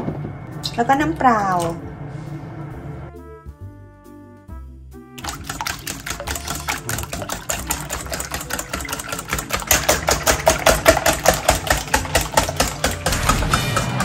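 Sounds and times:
whisk beating in metal bowl: 5.2 - 14.0.

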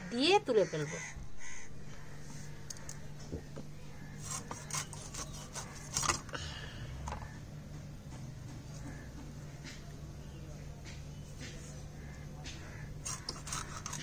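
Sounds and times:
steady low hum: 0.0 - 14.0
knife scraping and cutting fish: 4.2 - 6.3, 12.5 - 14.0.

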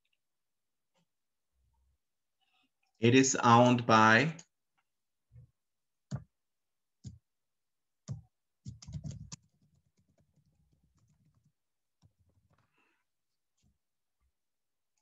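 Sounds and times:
computer keyboard typing: 8.0 - 11.6.

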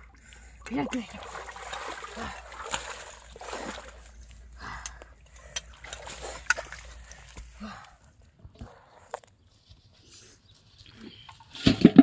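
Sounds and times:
water splashing and sloshing: 0.0 - 9.2.

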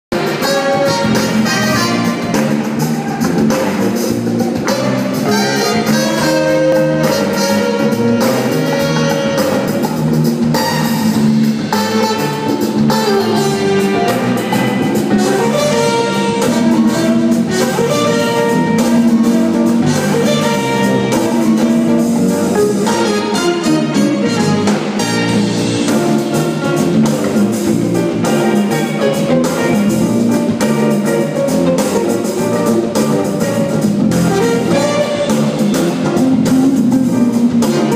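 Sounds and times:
live jazz-funk band: 0.1 - 37.9.

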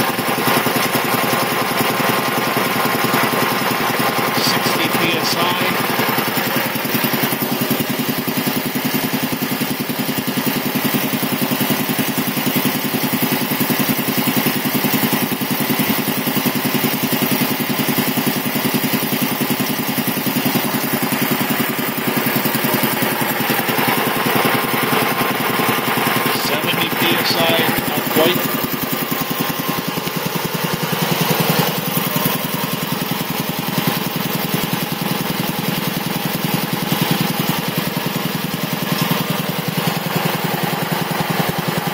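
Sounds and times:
piston air compressor running: 0.0 - 41.9.

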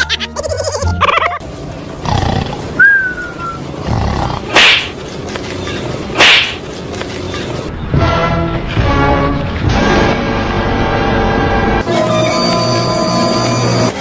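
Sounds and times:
animal snarling: 2.0 - 2.7, 3.8 - 5.0.

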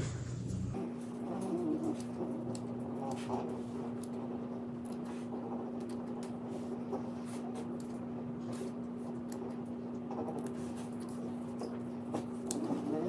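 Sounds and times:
low hum: 0.0 - 1.4
dog snorting breathing: 12.0 - 13.0.

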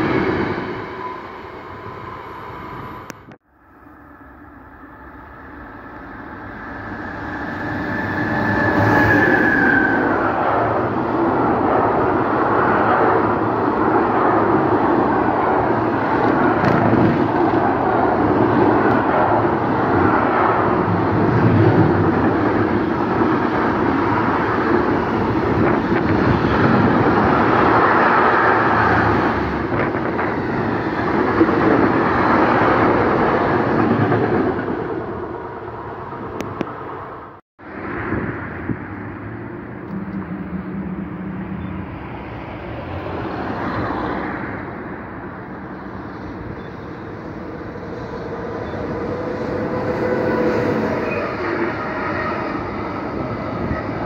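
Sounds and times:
train locomotive whine: 0.0 - 54.0
wagons rumbling on rails: 4.2 - 54.0.

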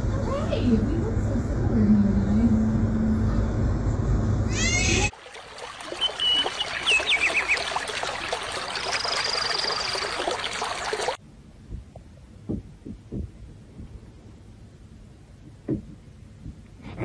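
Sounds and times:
water trickling: 5.1 - 11.2
small birds chirping: 5.8 - 10.6
bird trill: 5.9 - 7.8, 8.8 - 10.1.

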